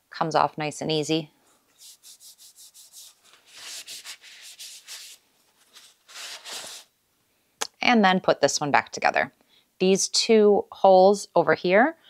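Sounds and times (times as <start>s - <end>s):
paper towel wiping metal grate: 1.8s - 6.8s.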